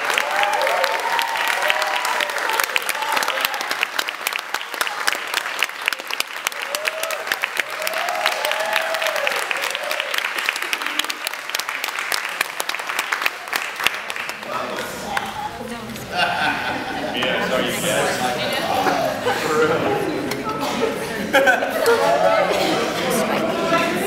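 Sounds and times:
audience applauding: 0.0 - 15.6.

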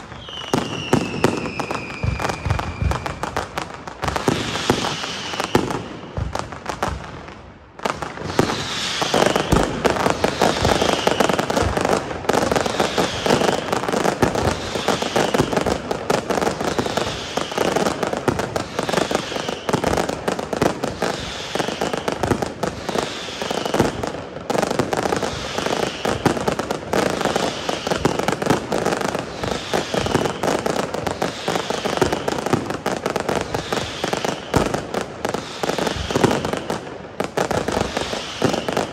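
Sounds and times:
fireworks crackling and banging: 0.0 - 38.9
high falling whistle: 0.1 - 3.3, 4.2 - 6.1, 8.2 - 11.8, 18.7 - 20.1.

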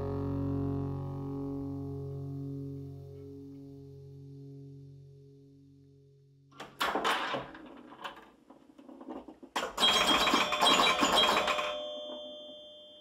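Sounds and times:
metallic clattering: 6.6 - 11.8
bell-like ringing strike: 10.8 - 13.0.

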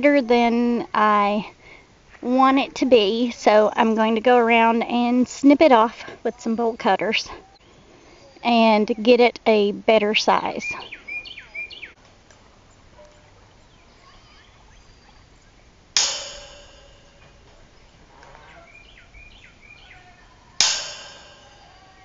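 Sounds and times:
birds chirping: 0.0 - 22.0
wire panel ringing: 15.9 - 18.0, 20.6 - 22.0.

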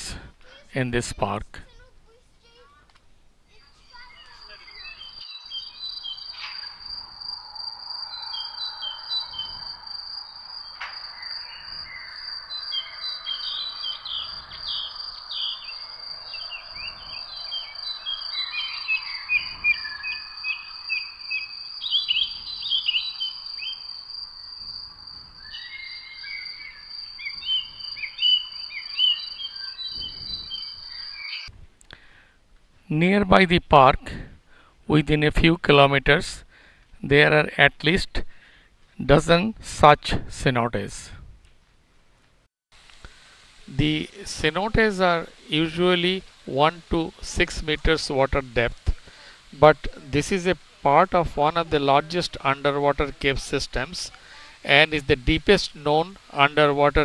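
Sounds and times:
birds chirping and calling: 3.6 - 31.5, 43.8 - 57.0
high insect drone: 3.6 - 31.5, 42.8 - 57.0.

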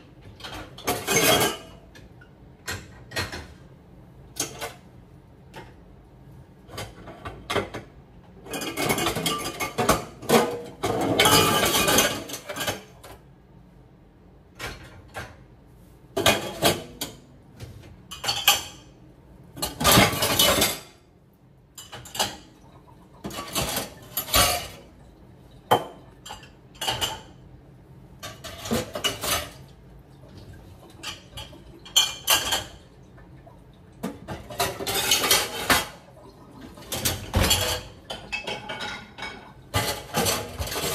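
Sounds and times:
dishes and cutlery clattering: 0.2 - 3.6, 4.3 - 4.9, 6.6 - 13.2, 16.2 - 19.0, 19.6 - 21.1, 21.7 - 27.6, 28.2 - 29.8, 30.8 - 33.1, 34.0 - 40.9.

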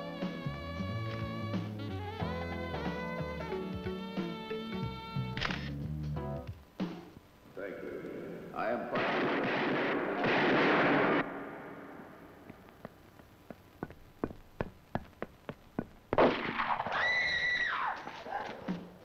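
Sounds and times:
footsteps on a tiled floor: 12.4 - 16.2.

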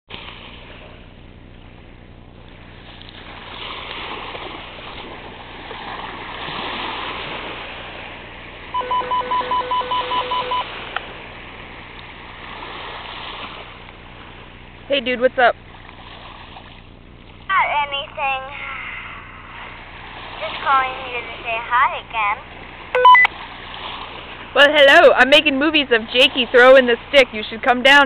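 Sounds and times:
walkie-talkie call beeps: 8.8 - 10.7, 23.0 - 23.3.

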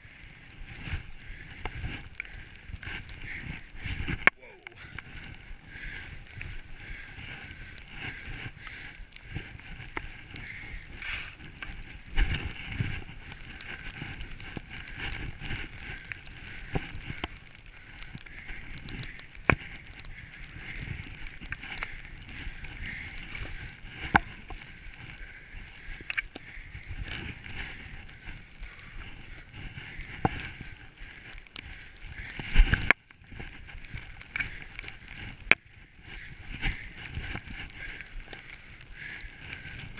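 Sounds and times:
skis hissing through snow: 11.0 - 11.4.

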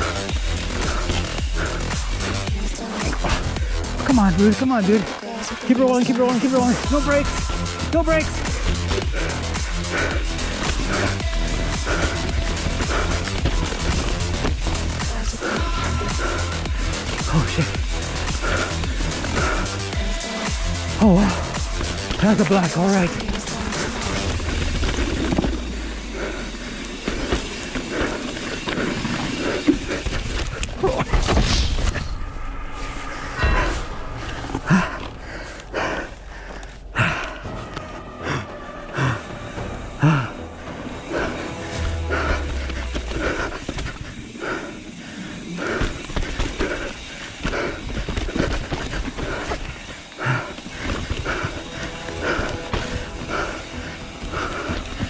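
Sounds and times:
bike tyres on dirt and rock: 0.0 - 55.0
heavy breathing: 0.0 - 55.0
bike knocks and rattles: 45.6 - 53.4.

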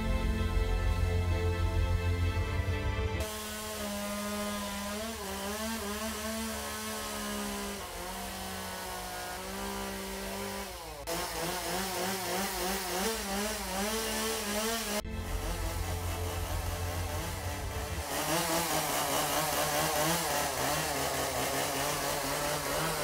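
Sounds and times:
chainsaw cutting wood: 3.2 - 23.0.

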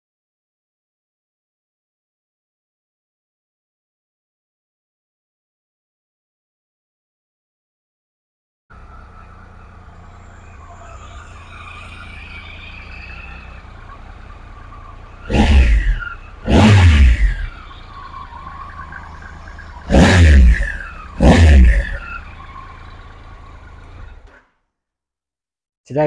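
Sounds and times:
motorcycle engine idling and revving: 8.7 - 24.6.

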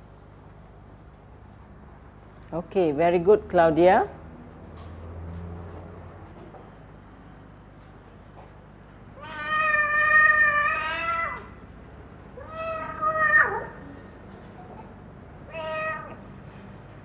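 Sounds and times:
cat meowing: 9.2 - 11.6, 12.4 - 13.8, 15.5 - 16.3.

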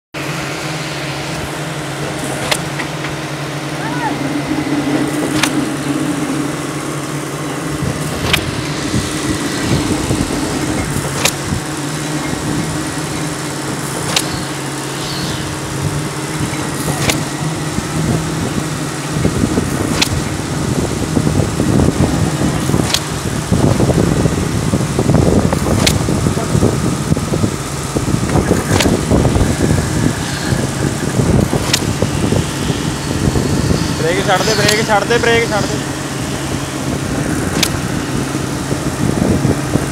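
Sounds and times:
material hoist humming: 0.2 - 39.9
sharp tick: 14.1 - 14.5.

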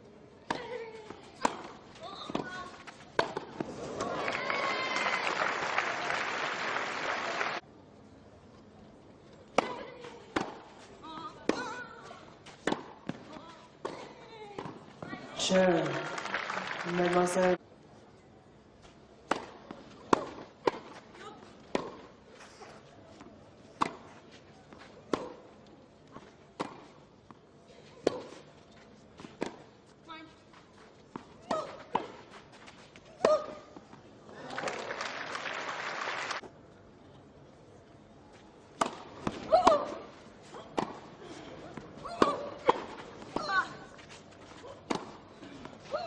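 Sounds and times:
tennis rackets striking ball: 1.4 - 4.2, 9.5 - 11.9, 12.5 - 14.8, 19.2 - 21.0, 21.7 - 22.1, 23.8 - 24.1, 25.1 - 25.5, 26.6 - 26.9, 38.8 - 40.1, 40.7 - 41.1, 41.8 - 43.8, 44.8 - 45.7
crowd applause: 4.0 - 7.6, 15.8 - 17.4, 34.4 - 36.4.

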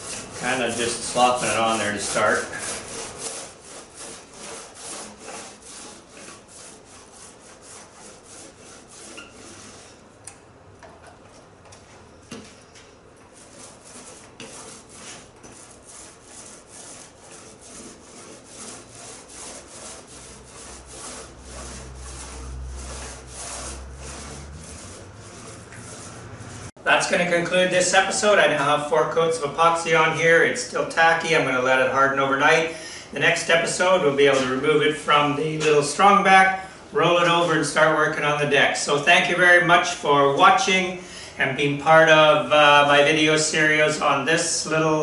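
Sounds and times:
paint roller swishing: 0.0 - 10.2, 13.2 - 26.8.

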